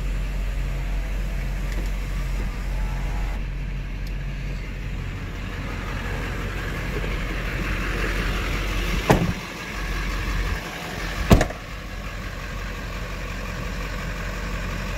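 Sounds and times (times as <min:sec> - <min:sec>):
diesel pickup idling: 0:00.0 - 0:14.9
door slams: 0:09.0 - 0:09.4, 0:11.2 - 0:11.7.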